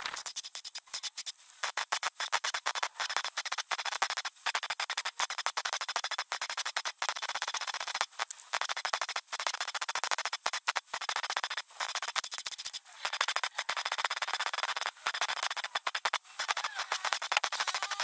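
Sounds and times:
welder arc crackling: 0.0 - 18.0.

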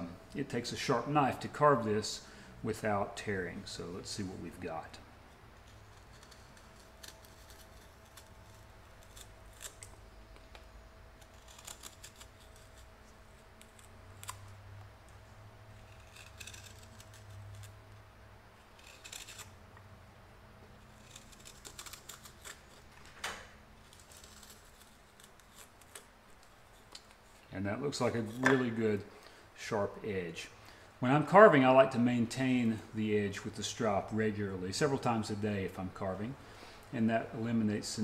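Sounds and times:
knife slicing wood shavings: 15.8 - 17.8.

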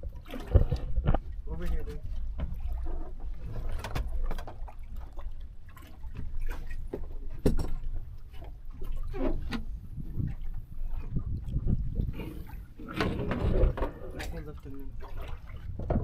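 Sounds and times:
water lapping against boat hull: 0.0 - 16.0
steady low rumble: 9.7 - 14.8.

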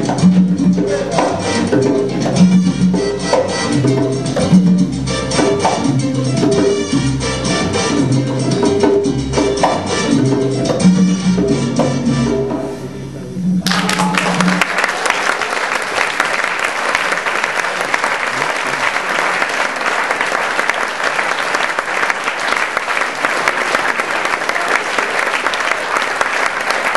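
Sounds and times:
salsa music held note: 0.0 - 14.9
audience applauding: 13.6 - 26.9.

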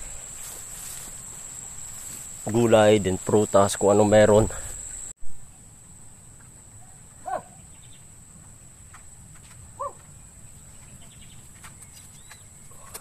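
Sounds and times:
steady high whine: 0.0 - 5.4.

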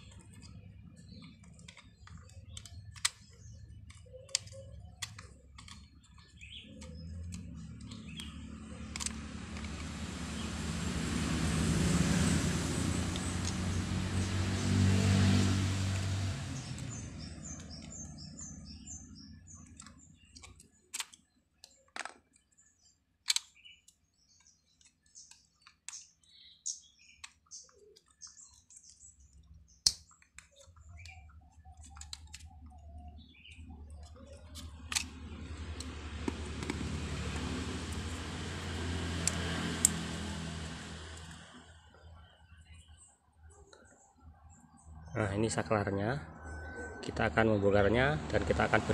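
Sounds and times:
plastic clicks and rattles: 0.0 - 10.0, 19.4 - 26.1, 29.8 - 41.7.

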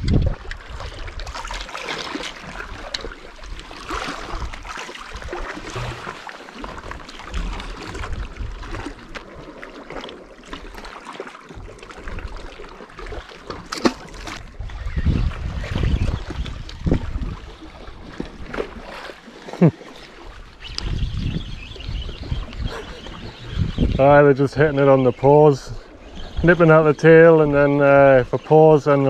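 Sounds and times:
wind buffeting microphone: 0.0 - 1.6, 7.3 - 9.1, 14.2 - 18.6, 20.3 - 29.0
water lapping against rocks: 0.0 - 29.0.

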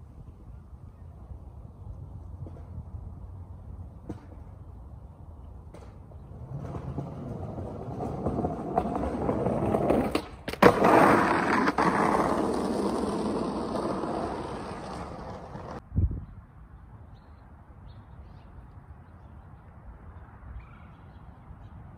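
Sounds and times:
skateboard clacks: 5.7 - 15.8
skateboard wheels rolling on gravel path: 5.7 - 15.8.

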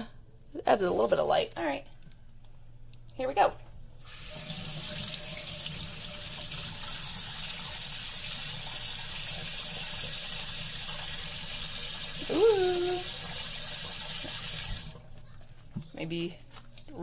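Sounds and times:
person humming rising mm: 12.2 - 13.1.

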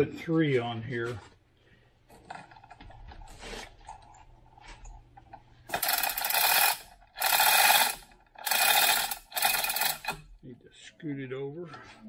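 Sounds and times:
hoist ratcheting clatter: 5.7 - 10.3.

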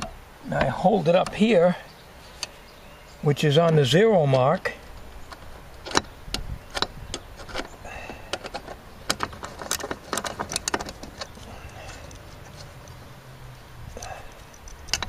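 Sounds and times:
sharp metallic clicks and taps: 14.3 - 15.0.

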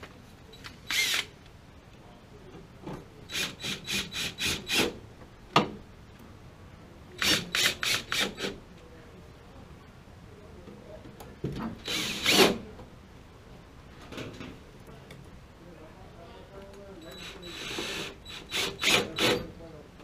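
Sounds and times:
cordless drill driving screws: 0.6 - 1.3, 7.2 - 8.6, 11.8 - 12.6, 17.2 - 19.4.

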